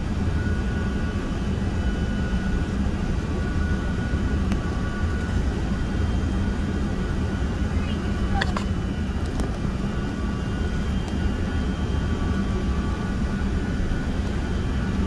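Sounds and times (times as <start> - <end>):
jet airliner engines rumbling: 0.0 - 15.0.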